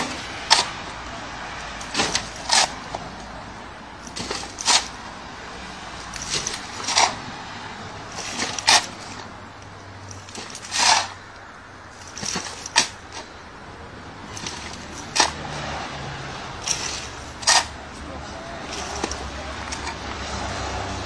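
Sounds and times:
shovel scraping wet soil: 0:01.8 - 0:02.8, 0:04.0 - 0:05.0, 0:06.2 - 0:07.3, 0:08.1 - 0:09.3, 0:10.1 - 0:11.2, 0:14.3 - 0:15.8, 0:16.6 - 0:17.8, 0:18.6 - 0:20.4.

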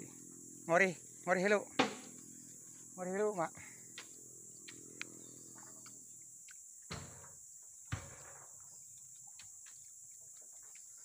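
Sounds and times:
insects chorus: 0:00.0 - 0:11.0
heavy thuds into truck bed: 0:01.8 - 0:02.1.

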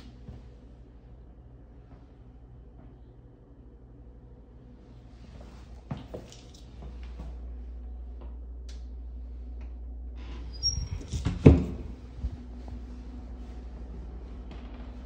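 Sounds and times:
door squeaking: 0:10.2 - 0:11.8.

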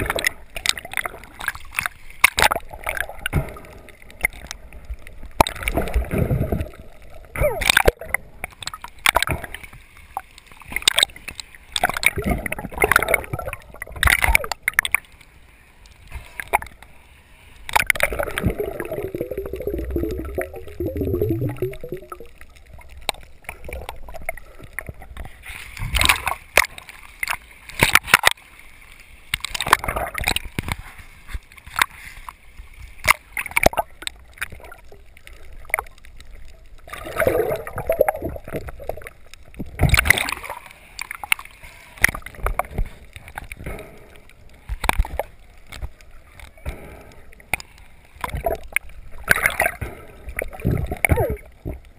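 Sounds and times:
sharp clicks and crackles: 0:00.0 - 0:51.9
water gurgling: 0:00.0 - 0:51.9
water sloshing and splashing: 0:00.0 - 0:51.9.

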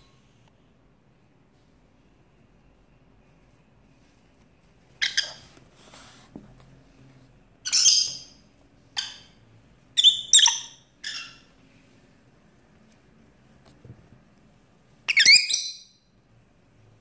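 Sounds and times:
lovebird shrill calls: 0:05.0 - 0:05.4, 0:10.0 - 0:11.5, 0:15.1 - 0:16.0.

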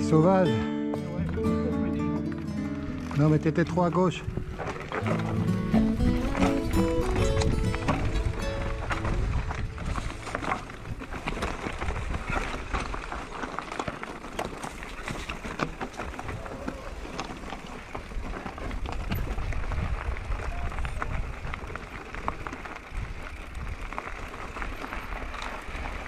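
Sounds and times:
bike tyres crackling over stones: 0:02.2 - 0:26.0
bike rattles and knocks: 0:03.0 - 0:26.0
wind rumbling on microphone: 0:04.1 - 0:26.0.

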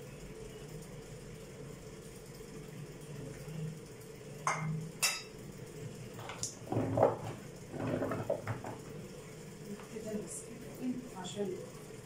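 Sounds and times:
food clattering and rustling in bowl: 0:06.2 - 0:08.9.

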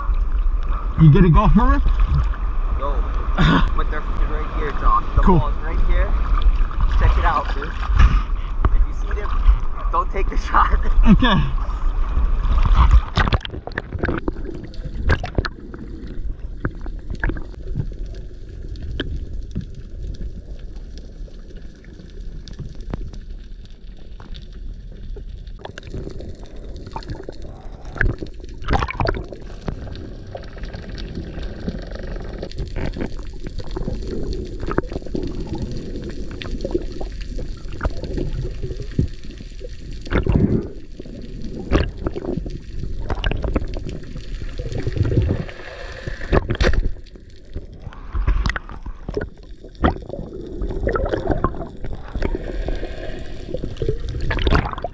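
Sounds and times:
water gurgling and bubbling: 0:00.0 - 0:23.0, 0:24.0 - 0:54.9
muffled underwater rumble: 0:00.0 - 0:54.9
sharp clicks and pops: 0:12.6 - 0:15.6, 0:18.7 - 0:21.7, 0:22.3 - 0:39.4, 0:41.7 - 0:45.4, 0:46.2 - 0:52.4, 0:53.8 - 0:54.9.

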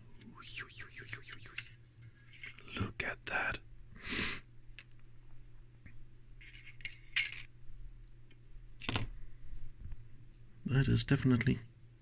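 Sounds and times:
faint low hum: 0:00.0 - 0:12.0
small parts clinking and scraping: 0:01.5 - 0:02.7, 0:06.4 - 0:07.5.

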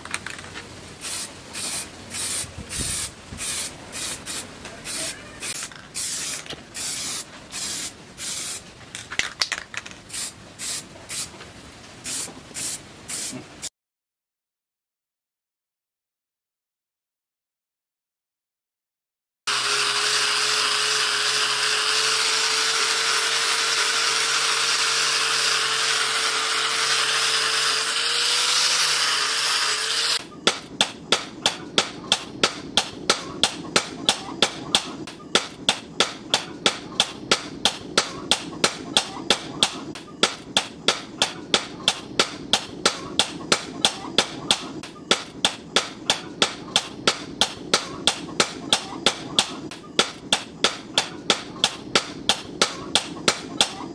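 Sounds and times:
angle grinder buffing metal: 0:19.5 - 0:30.2.

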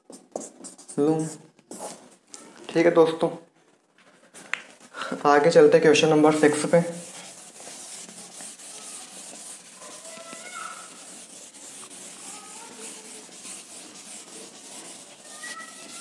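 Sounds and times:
pen scratching on paper: 0:00.0 - 0:02.0, 0:06.2 - 0:16.0.

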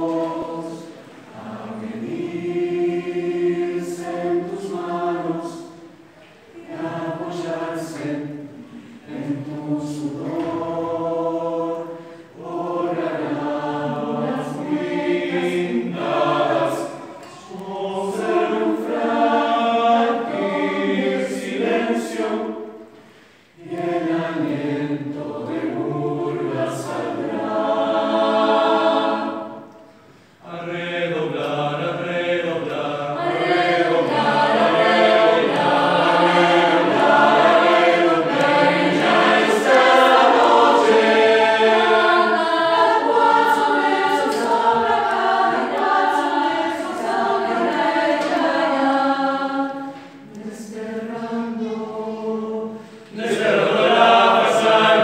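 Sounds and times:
mixed choir singing unaccompanied: 0:00.0 - 0:55.0.

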